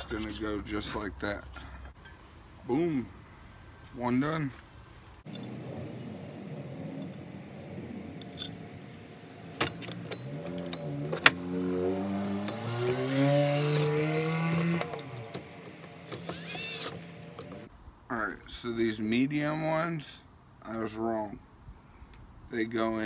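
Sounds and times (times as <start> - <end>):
cordless drill driving a screw: 16.0 - 17.6.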